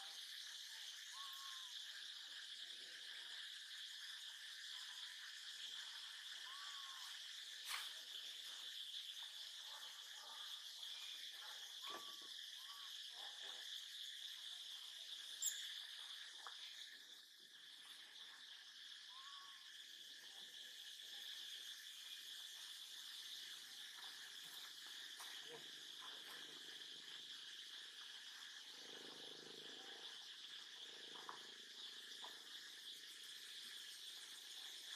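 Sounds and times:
high-pitched insect chorus: 0:00.0 - 0:34.9
short arching faint calls: 0:01.0 - 0:02.3, 0:05.9 - 0:07.8, 0:10.2 - 0:13.2, 0:14.9 - 0:16.9, 0:18.8 - 0:19.9.

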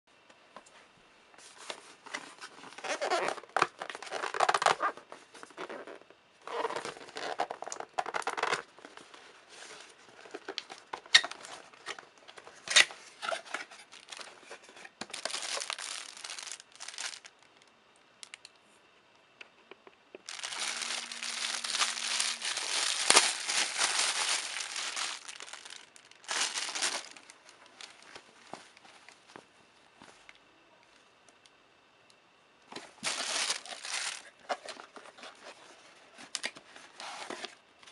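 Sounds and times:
plastic wrapping crinkling: 0:02.8 - 0:08.7, 0:12.8 - 0:18.4, 0:20.2 - 0:28.3, 0:32.8 - 0:35.3.

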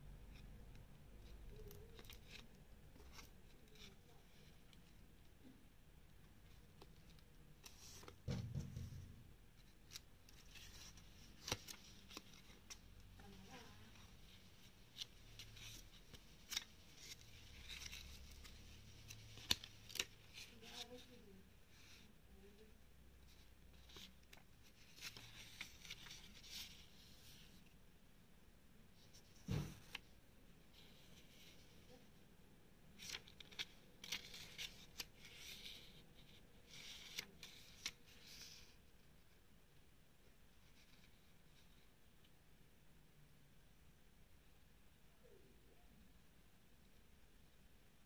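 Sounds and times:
paper pages rustling: 0:09.6 - 0:21.1, 0:23.3 - 0:27.6, 0:33.0 - 0:38.8.

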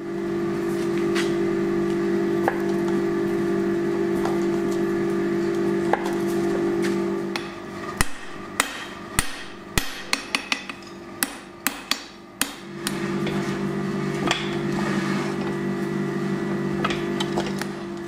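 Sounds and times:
hammer striking steel on anvil: 0:07.3 - 0:13.0.

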